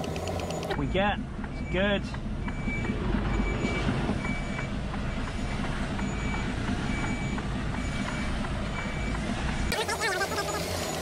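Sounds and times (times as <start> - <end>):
diesel engine low rumble: 0.0 - 11.0
reversing alarm short high beeps: 0.3 - 9.1.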